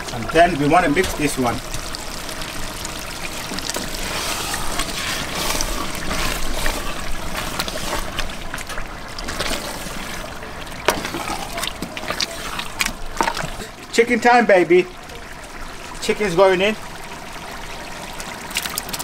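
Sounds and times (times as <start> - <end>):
spoon stirring in pot: 3.5 - 13.6.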